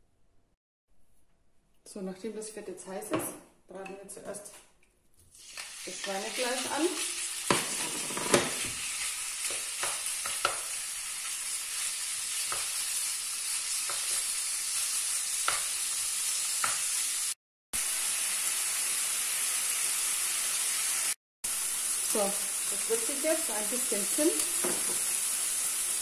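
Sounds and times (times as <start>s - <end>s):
meat sizzling in a frying pan: 5.4s - 26.0s.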